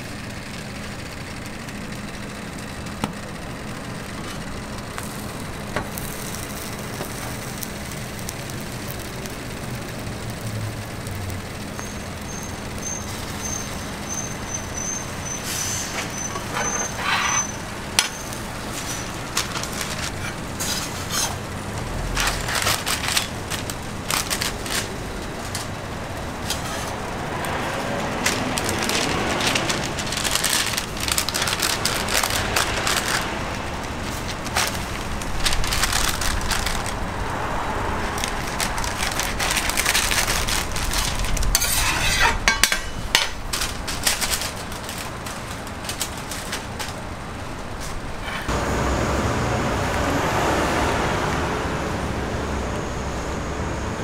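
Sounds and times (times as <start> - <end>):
toast sizzling on a griddle: 4.0 - 48.3
paper wrapper rustling: 15.6 - 48.4
metal spatula clicks and scrapes: 38.2 - 45.0.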